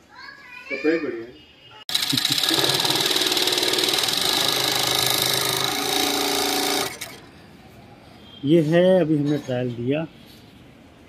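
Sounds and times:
industrial sewing machine stitching: 1.9 - 7.3.

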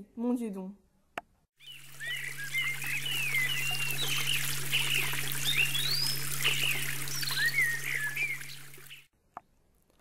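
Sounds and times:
small birds chirping: 1.6 - 9.1
stream trickling: 1.6 - 9.1.

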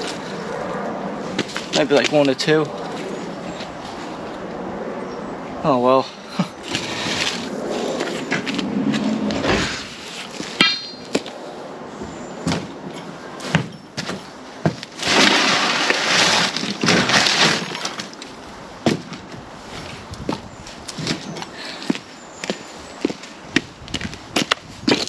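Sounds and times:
short metallic ring: 10.6 - 11.1
bricks and rubble clattering: 13.5 - 18.2.

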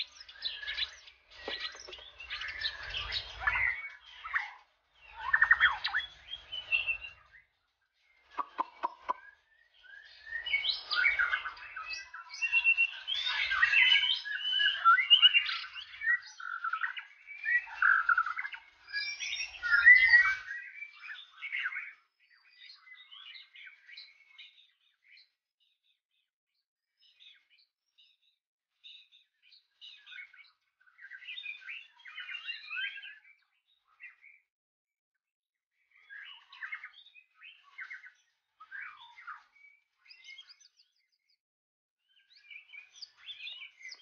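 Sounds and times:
bird singing whistled song: 0.0 - 26.0, 27.0 - 34.5, 35.8 - 41.4, 42.0 - 44.0
quick clicking bird notes: 8.4 - 9.2.

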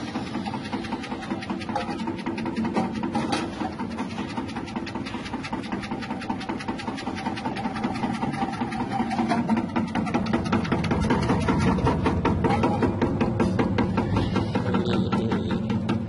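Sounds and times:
slicing machine motor chattering: 0.0 - 16.0.

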